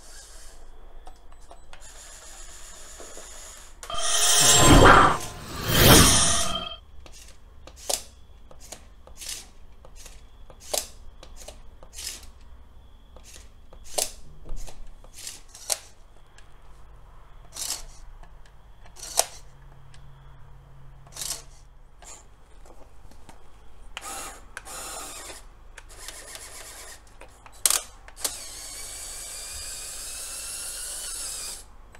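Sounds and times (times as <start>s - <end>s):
plastic clicks of toy crane: 7.0s - 12.5s, 13.2s - 16.0s, 17.4s - 19.5s, 21.0s - 22.2s, 24.0s - 31.7s.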